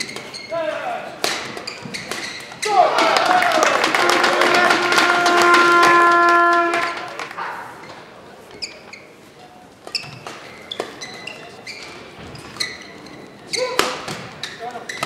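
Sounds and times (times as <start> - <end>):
shoes squeaking on court floor: 0.0 - 2.8, 7.7 - 15.0
racket hitting shuttlecock: 1.2 - 2.8, 13.6 - 14.5
crowd clapping: 2.8 - 7.6
steady horn-like note: 3.9 - 7.2.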